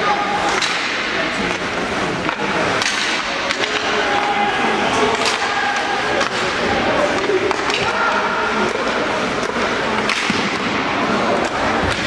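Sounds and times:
arena crowd noise: 0.0s - 12.0s
stick hitting puck: 2.2s - 4.3s, 5.1s - 10.8s, 11.4s - 12.0s
people shouting: 3.5s - 8.8s.

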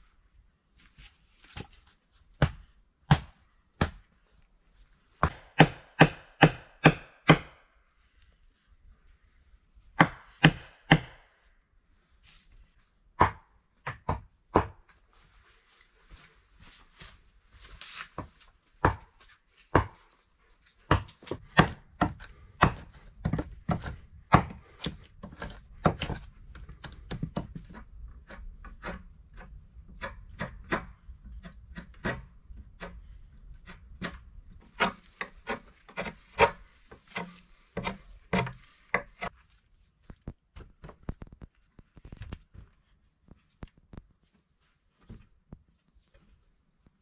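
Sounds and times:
hoe striking earth: 10.0s - 11.2s, 20.9s - 39.4s
soil scraping: 31.3s - 40.4s.

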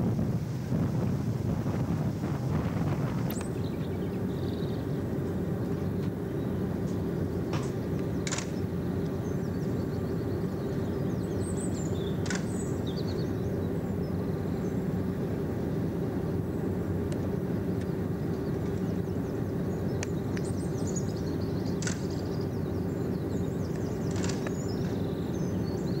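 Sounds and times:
diesel train engine humming: 0.0s - 26.0s
birds chirping: 1.2s - 26.0s
sharp clicks: 7.6s - 9.1s, 12.2s - 12.6s, 21.8s - 22.2s.

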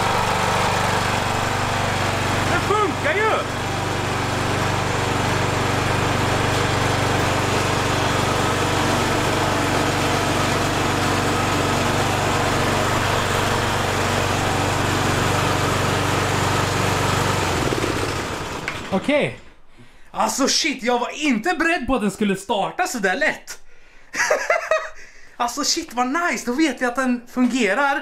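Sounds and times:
riding lawn mower engine running: 0.0s - 19.0s.

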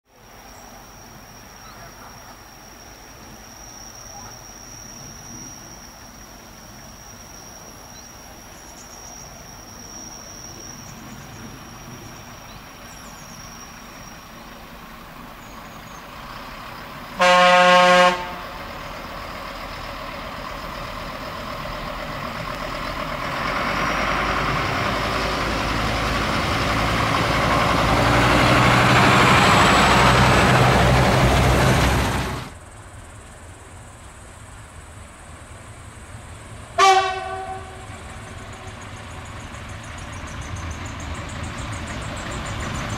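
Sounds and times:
railcar engine and wheels on rails: 0.1s - 42.9s
train horn blast: 17.2s - 18.6s, 36.8s - 38.4s.

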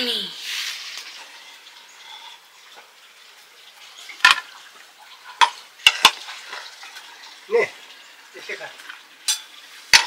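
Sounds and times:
metal ladle clinking against pot: 9.3s - 10.0s.

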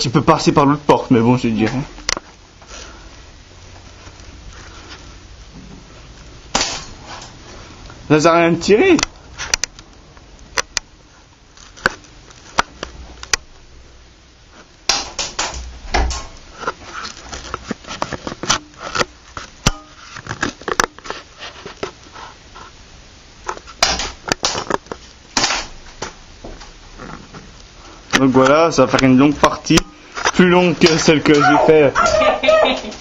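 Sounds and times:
shuffling and handling noise: 0.0s - 6.3s, 15.6s - 33.0s
airsoft pistol shots: 6.5s - 7.0s, 14.9s - 16.2s, 25.4s - 25.8s.

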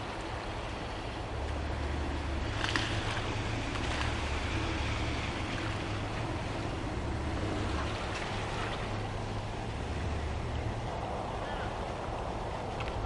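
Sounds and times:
water splashing around tyres: 0.0s - 10.9s
vehicle low hum: 0.0s - 13.0s.

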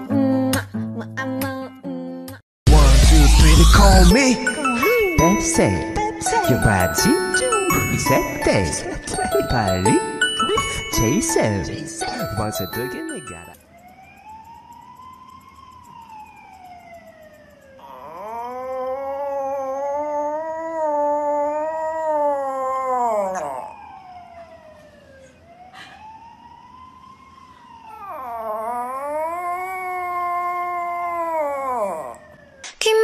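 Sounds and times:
dog howling: 17.8s - 24.0s, 27.9s - 32.4s
faint dog wail: 17.8s - 24.0s, 27.8s - 32.4s.

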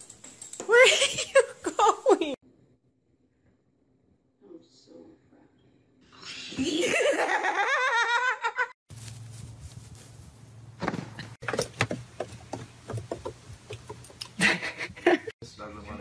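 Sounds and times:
person laughing in high voice: 0.7s - 2.4s
knocks and thuds: 10.8s - 14.2s.

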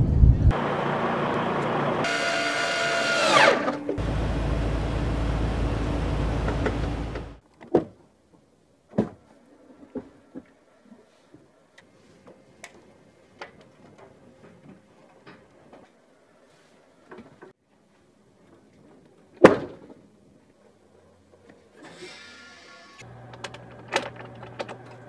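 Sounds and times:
loud steady tones dropping in pitch: 0.5s - 7.2s.

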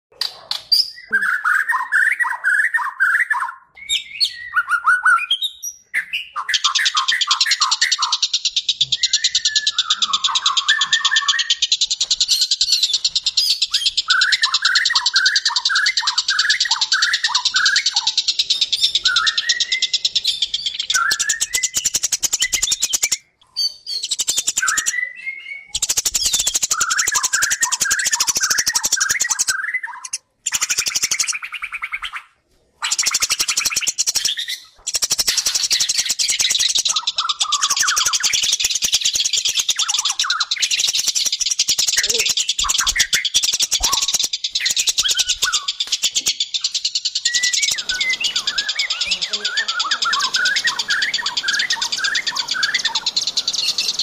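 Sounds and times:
songbirds chirping: 0.1s - 54.0s
fast high bird trill: 33.1s - 54.0s.

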